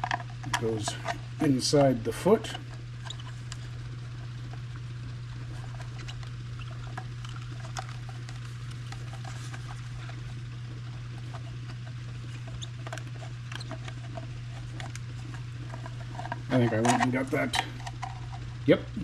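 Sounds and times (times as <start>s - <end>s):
steady low hum: 0.0s - 19.0s
plastic clicks and scrapes: 5.5s - 18.4s.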